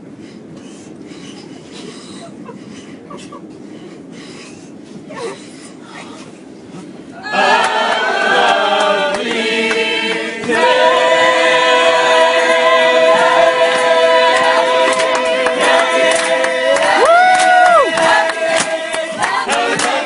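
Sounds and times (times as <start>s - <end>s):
group singing a cappella: 7.2s - 20.0s.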